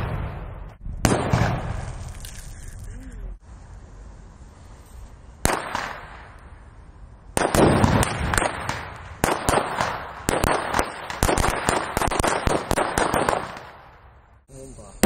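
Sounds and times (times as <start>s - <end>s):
firecracker bang: 0.0s - 2.3s, 5.4s - 6.4s
firecrackers cracking and fizzing: 1.1s - 3.0s, 5.4s - 6.4s, 7.4s - 14.0s.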